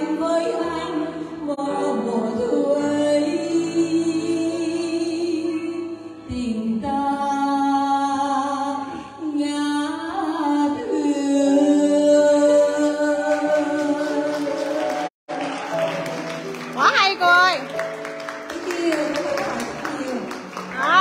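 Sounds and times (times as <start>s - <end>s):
woman singing into a microphone: 0.0s - 15.1s
grand piano accompaniment: 12.4s - 21.0s.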